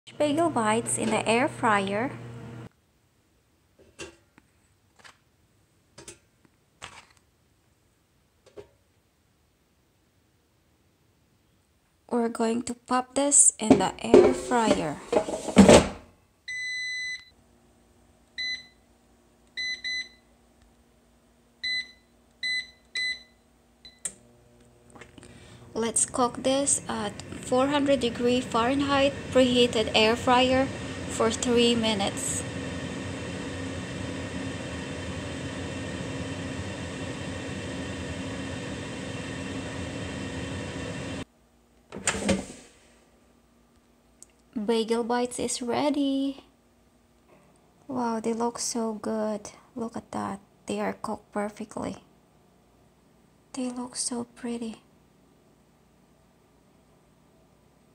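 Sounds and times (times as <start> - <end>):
air fryer fan humming: 0.1 - 2.7, 24.2 - 41.3
drawer scraping: 14.0 - 16.0, 41.9 - 42.9.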